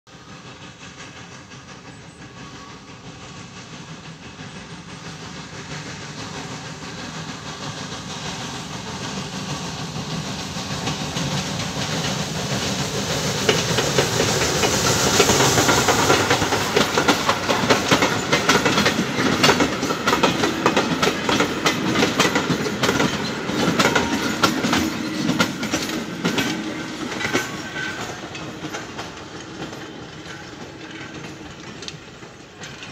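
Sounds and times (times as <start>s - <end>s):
hiss of steam: 0.1s - 32.9s
steam locomotive passing: 0.1s - 32.9s
wheels clicking over rail joints: 10.8s - 32.9s.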